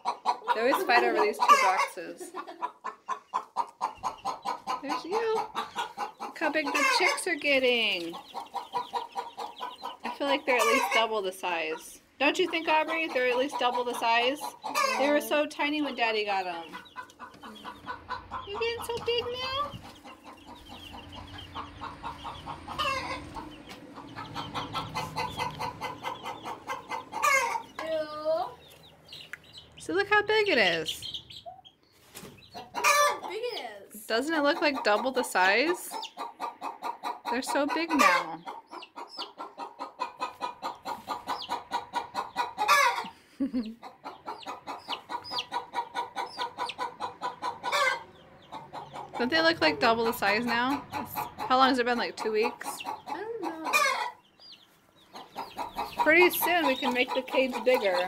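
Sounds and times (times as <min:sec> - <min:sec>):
chickens clucking: 0:00.0 - 0:58.0
chicks peeping: 0:00.0 - 0:58.0.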